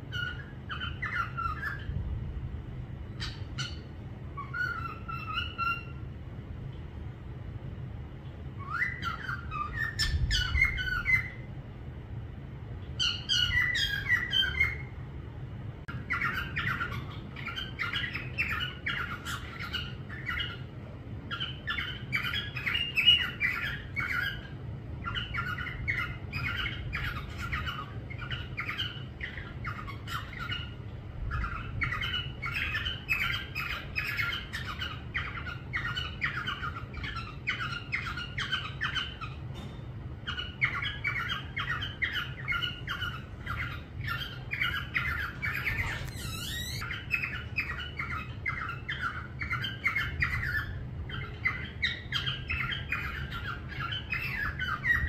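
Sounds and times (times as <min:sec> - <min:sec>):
parrot chattering and squawking: 0:00.0 - 0:01.9, 0:03.1 - 0:06.1, 0:08.6 - 0:11.5, 0:12.8 - 0:15.0, 0:15.9 - 0:55.0
parrot wavering whistle: 0:40.7 - 0:50.7.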